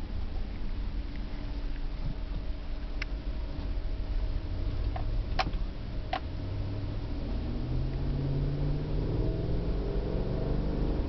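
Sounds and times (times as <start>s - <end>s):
car engine accelerating: 2.2s - 11.0s.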